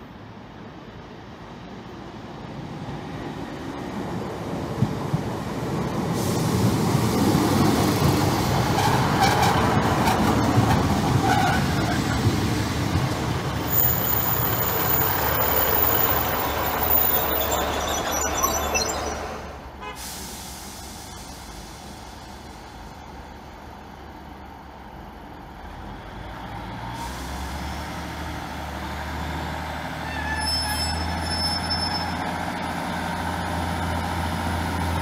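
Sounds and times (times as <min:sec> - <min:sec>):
train wheels and diesel engine rumble: 0:00.0 - 0:35.0
high brake squeals: 0:13.7 - 0:21.7, 0:30.0 - 0:32.3.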